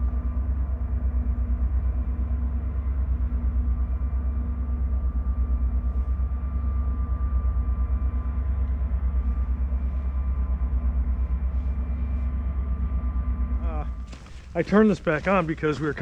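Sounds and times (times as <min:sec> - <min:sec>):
faint steady whine: 0:00.0 - 0:16.0
diesel engines rumbling: 0:09.0 - 0:16.0.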